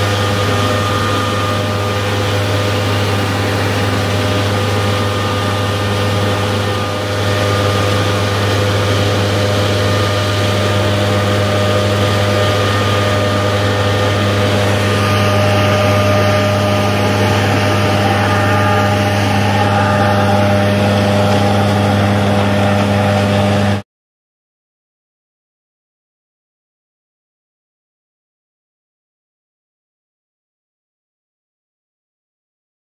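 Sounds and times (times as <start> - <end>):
engine humming with whine: 0.0 - 23.8.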